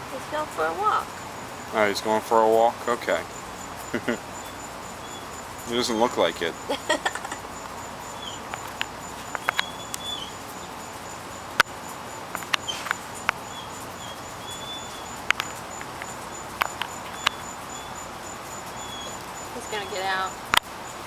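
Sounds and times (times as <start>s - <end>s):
insects chirping: 0.0s - 21.0s
sharp clicks and taps: 8.5s - 10.0s, 12.3s - 13.4s, 15.2s - 17.4s.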